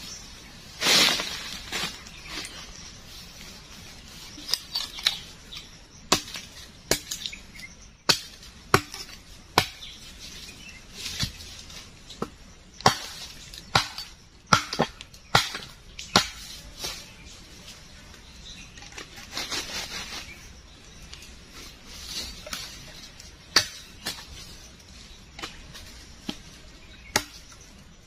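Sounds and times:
blade chopping wood: 6.1 - 7.4, 8.0 - 10.0, 12.2 - 16.5, 27.1 - 27.6.

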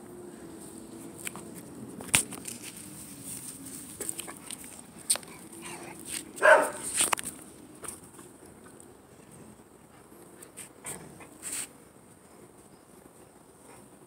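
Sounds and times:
dog barking: 6.4 - 6.9.

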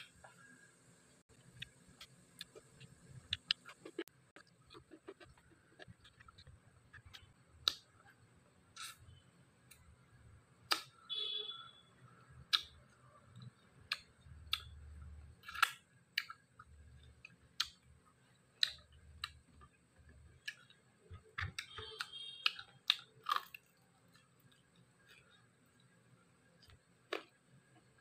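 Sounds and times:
person chewing food: 1.3 - 8.2, 12.4 - 28.0.

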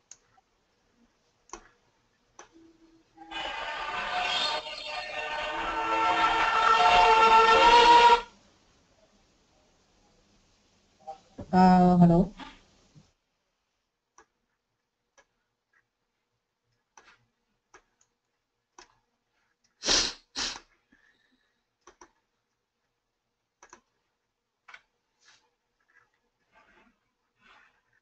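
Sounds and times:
faint clicks and ticks: 0.0 - 3.0, 14.1 - 19.8, 20.6 - 28.0
short puffs of noise: 19.8 - 20.7.

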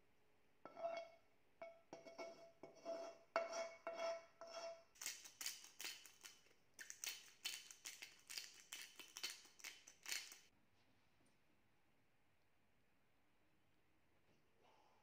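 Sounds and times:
spice grinder crunching: 5.0 - 10.5.

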